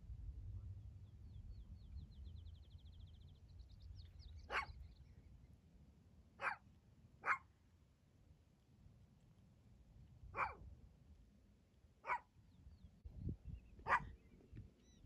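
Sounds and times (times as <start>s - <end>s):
prairie dog barking: 4.4s - 4.8s, 6.4s - 7.5s, 10.3s - 10.7s, 12.0s - 12.4s, 13.8s - 14.2s.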